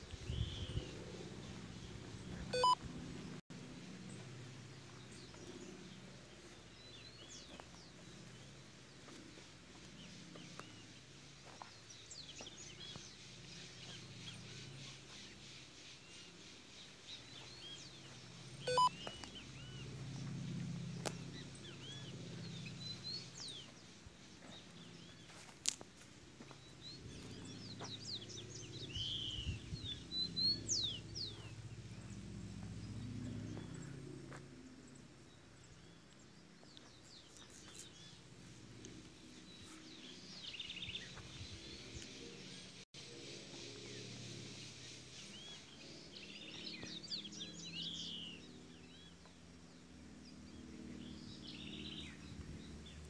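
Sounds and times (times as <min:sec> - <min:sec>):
short electronic beep: 0:02.5 - 0:02.8, 0:18.7 - 0:19.0.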